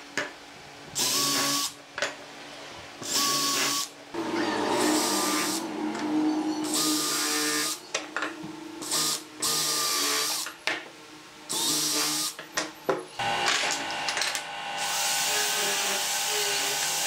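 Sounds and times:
electric disc sander running: 4.2s - 10.4s, 13.2s - 17.0s.

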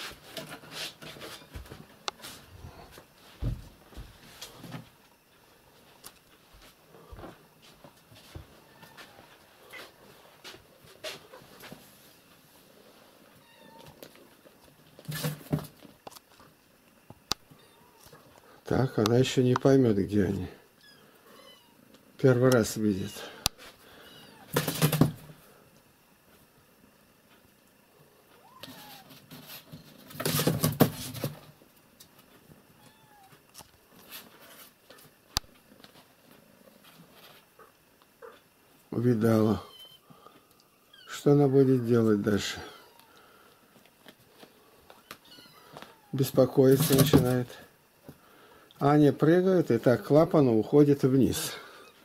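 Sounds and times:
cat meowing: 13.4s - 14.0s, 20.8s - 21.8s, 24.0s - 24.5s, 28.4s - 29.1s, 32.8s - 33.4s, 39.6s - 40.0s, 42.7s - 43.2s, 45.0s - 46.2s
kittens mewing: 23.9s - 24.6s, 45.0s - 46.2s.

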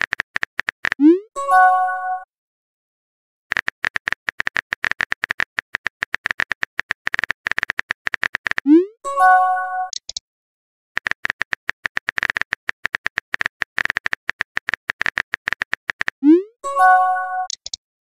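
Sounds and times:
keyboard typing clicks: 0.0s - 1.2s, 3.5s - 8.8s, 9.9s - 10.2s, 11.0s - 17.8s
message chime: 1.4s - 2.2s, 8.8s - 9.9s, 16.2s - 17.5s.

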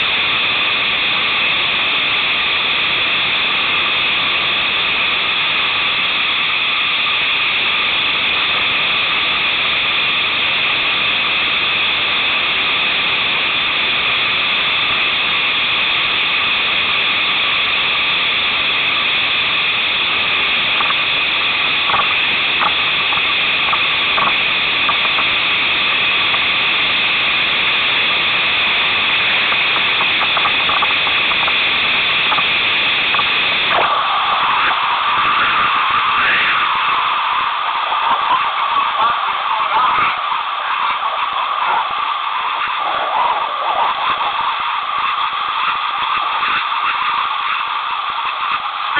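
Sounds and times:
water rushing over rapids: 0.0s - 48.9s.

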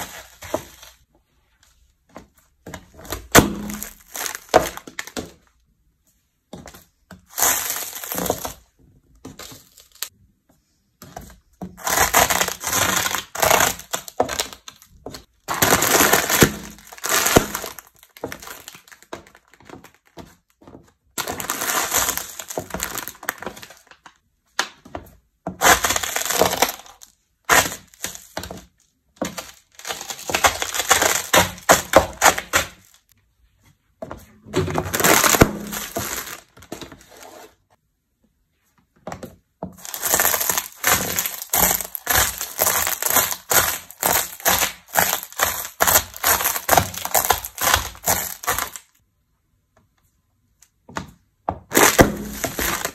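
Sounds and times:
snack food crunching underfoot: 39.8s - 48.8s.

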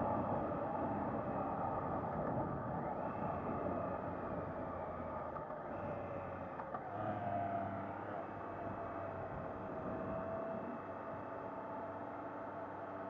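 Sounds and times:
wind and road noise: 0.0s - 13.0s.

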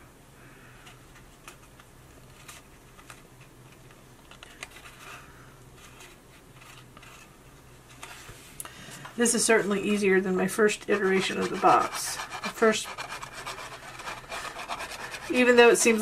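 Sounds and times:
cardstock rustling and ticking: 10.8s - 16.0s.

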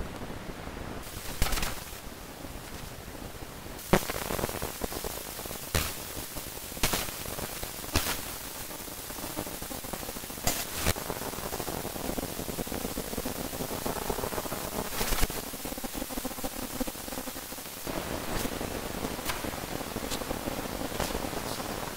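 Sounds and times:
static hiss: 0.0s - 21.9s
sharp cracks or pops: 1.0s - 2.0s, 3.8s - 8.7s, 10.4s - 11.1s, 14.9s - 15.5s, 18.3s - 21.9s.

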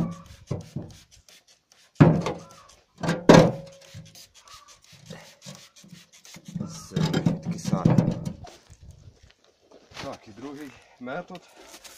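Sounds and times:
trigger sprayer squirting: 0.0s - 7.8s
rubbing and scraping metal part: 0.0s - 8.8s.

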